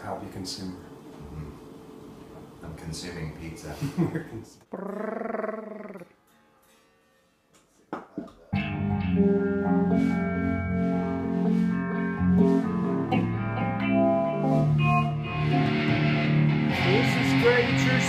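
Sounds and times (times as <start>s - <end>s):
electric guitar chords ringing: 8.6s - 18.0s.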